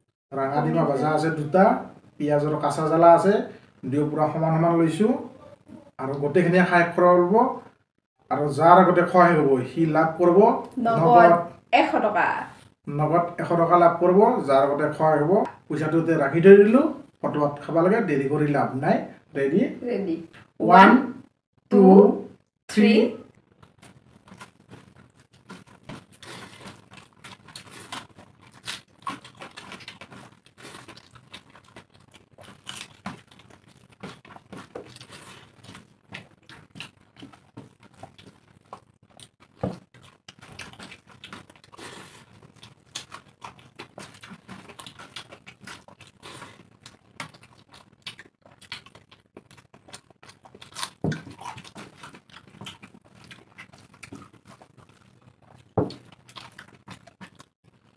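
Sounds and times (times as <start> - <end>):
chewing and mouth sounds: 23.2 - 57.9
rice squishing in fingers: 23.4 - 57.6.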